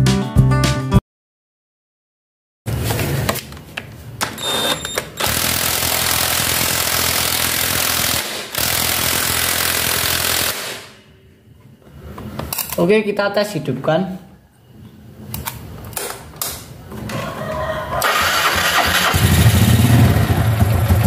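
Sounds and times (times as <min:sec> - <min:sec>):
impact wrench rattling: 0:05.1 - 0:10.6.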